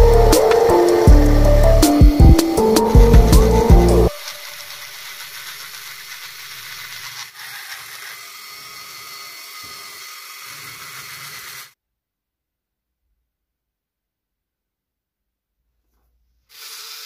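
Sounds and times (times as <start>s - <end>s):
rotary tool grinding wood: 0.2s - 11.8s, 16.5s - 17.0s.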